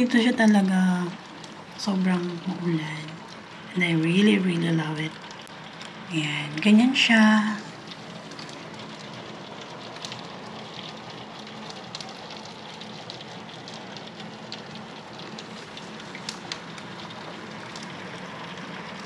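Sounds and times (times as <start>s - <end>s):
heavy rain through window: 0.0s - 19.0s
raindrops ticking on glass: 0.0s - 19.0s.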